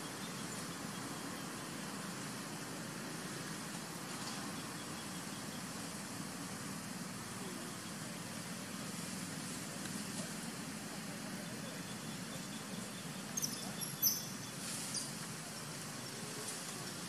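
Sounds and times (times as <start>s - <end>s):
outdoor background noise: 0.0s - 17.0s
short high-pitched chirps: 13.2s - 15.2s.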